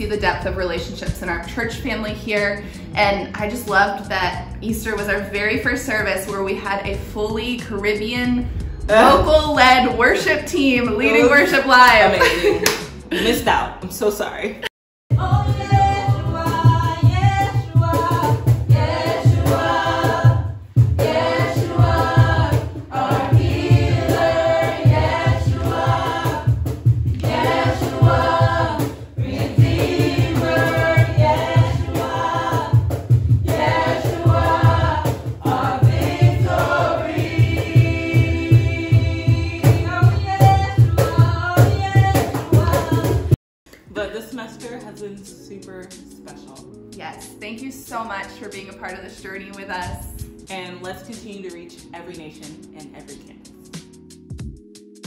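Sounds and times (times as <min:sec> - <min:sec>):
group singing worship song: 0:08.6 - 0:10.2, 0:15.1 - 0:43.4.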